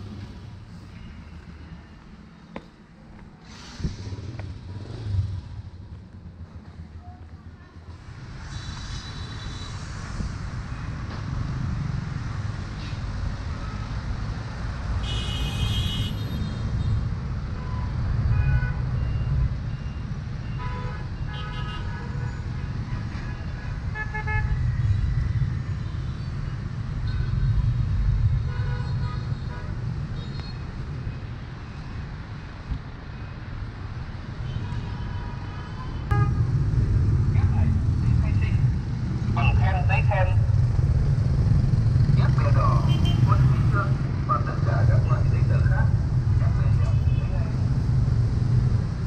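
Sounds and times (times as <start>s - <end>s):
engines and tyres rumbling: 0.0s - 49.0s
vehicle horns tooting: 15.0s - 16.6s, 36.0s - 36.4s.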